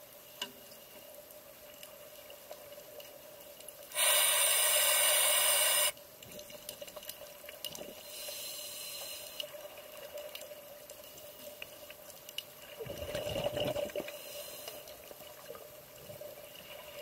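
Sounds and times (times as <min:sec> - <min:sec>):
faint scattered clicks: 0:00.2 - 0:12.7, 0:14.0 - 0:15.5
diver breathing through regulator: 0:03.9 - 0:06.0.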